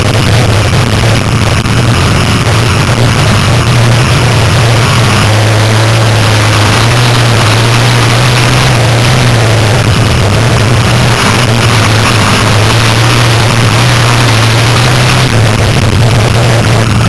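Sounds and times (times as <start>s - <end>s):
race car engine drone: 0.0s - 17.0s
wind and road noise: 0.0s - 17.0s.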